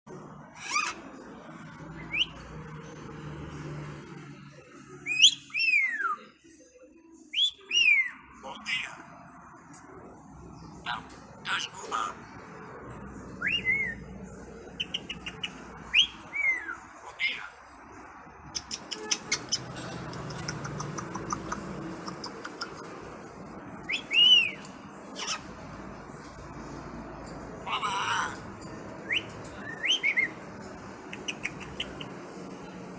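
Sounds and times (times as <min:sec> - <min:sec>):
parrot whistle: 0:13.4 - 0:14.0
parrot whistling: 0:13.4 - 0:14.0, 0:14.8 - 0:16.8
parrot clicking: 0:20.0 - 0:23.0.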